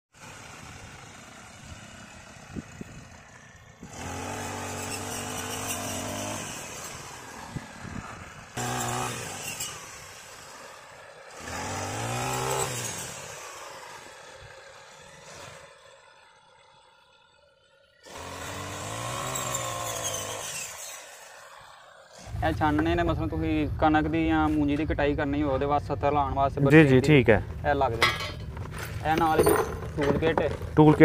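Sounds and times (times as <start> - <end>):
brush cutter engine revving: 0.2 - 23.1.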